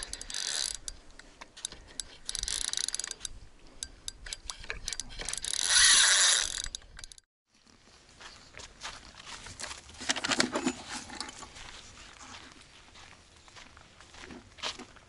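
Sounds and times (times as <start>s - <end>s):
fishing reel clicking and buzzing: 0.0s - 1.0s, 1.6s - 7.3s.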